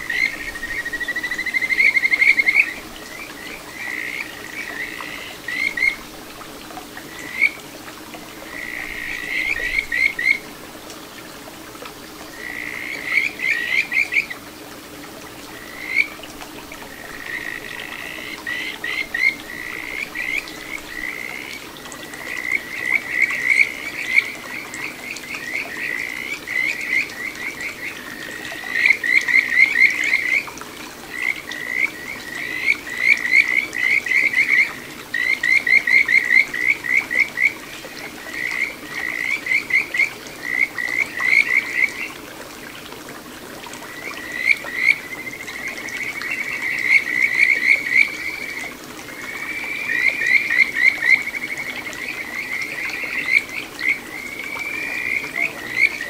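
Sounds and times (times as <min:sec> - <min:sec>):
frog calling with whistle-like notes: 0:00.0 - 0:06.0, 0:49.2 - 0:56.0.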